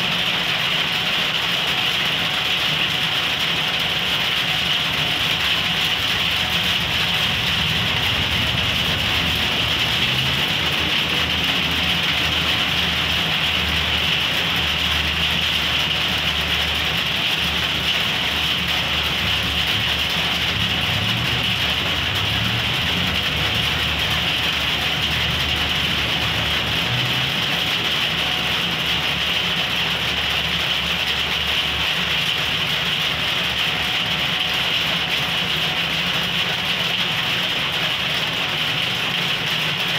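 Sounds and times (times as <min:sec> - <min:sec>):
steady rain hiss: 0:00.0 - 0:39.9
vehicle engines idling: 0:00.0 - 0:39.9
passenger train rumbling: 0:03.7 - 0:31.9.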